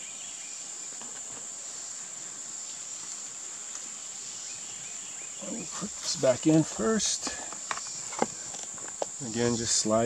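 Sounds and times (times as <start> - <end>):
faint clicks of air rifle parts: 7.1 - 9.1.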